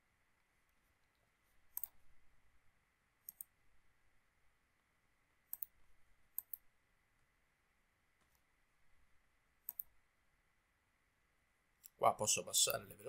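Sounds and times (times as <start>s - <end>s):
faint mouse clicks: 0.7s - 2.1s, 3.2s - 3.6s, 5.4s - 6.7s, 8.2s - 8.5s, 9.6s - 10.0s, 11.8s - 12.0s.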